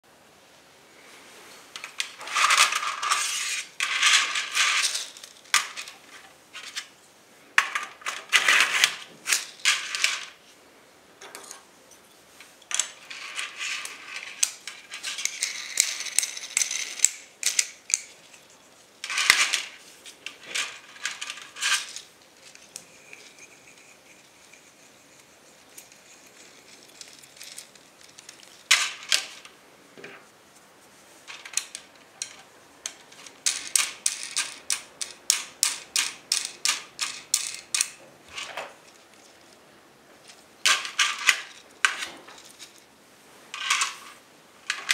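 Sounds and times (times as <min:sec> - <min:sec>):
plastic parts clicking and rattling: 0:01.8 - 0:06.9, 0:12.7 - 0:29.5, 0:31.3 - 0:39.6, 0:40.2 - 0:42.8, 0:43.6 - 0:44.9.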